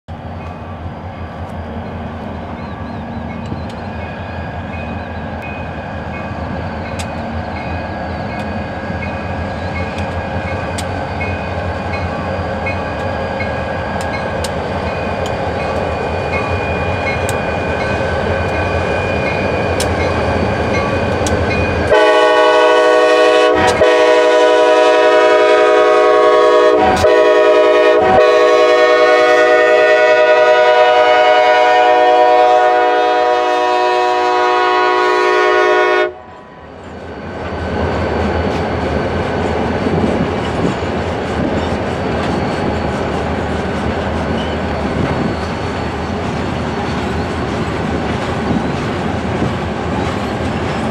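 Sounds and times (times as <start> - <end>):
diesel locomotives passing: 0.1 - 50.9
locomotive horn chord: 21.9 - 36.4.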